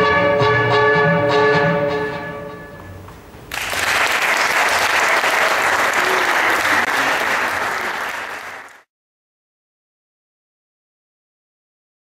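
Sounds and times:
backing music: 0:00.0 - 0:03.1
audience applause: 0:03.5 - 0:08.9.

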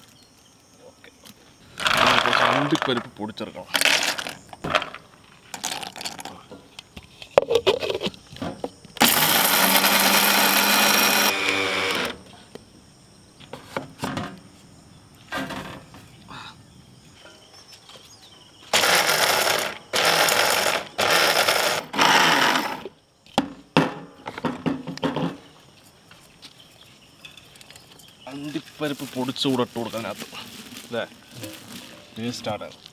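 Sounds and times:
mixer grinder grinding nuts: 0:01.8 - 0:02.9, 0:09.0 - 0:12.2, 0:18.7 - 0:22.9.

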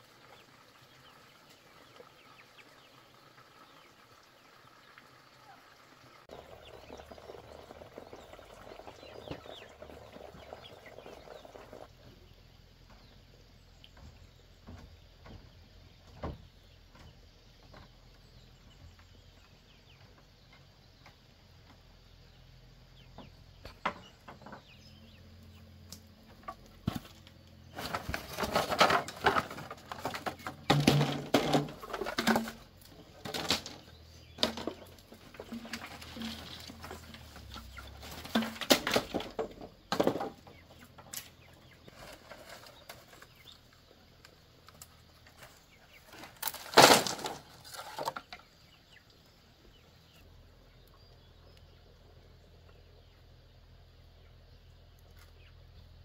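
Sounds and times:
bamboo sticks clattering: 0:25.8 - 0:48.6.

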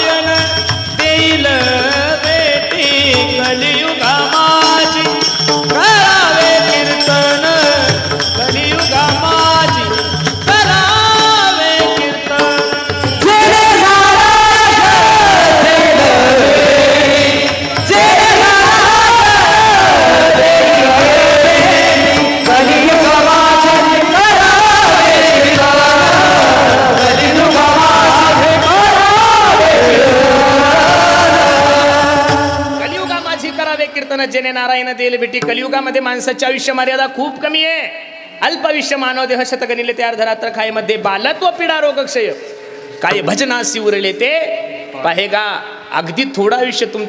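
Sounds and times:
jingling hand cymbals: 0:00.0 - 0:30.6, 0:31.2 - 0:34.4
repeating drum beat: 0:00.0 - 0:34.0
ornamented devotional melody: 0:00.0 - 0:34.2.

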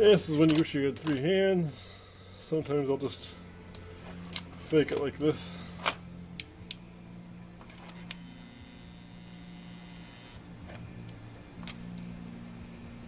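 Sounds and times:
low steady hum: 0:00.0 - 0:13.0
small parts and tools clicking: 0:00.2 - 0:01.3.

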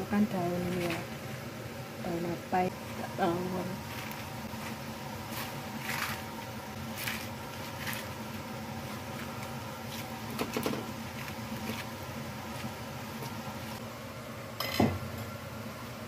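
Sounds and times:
steady background hum: 0:00.0 - 0:16.0
leafy greens rustling: 0:02.7 - 0:13.8.

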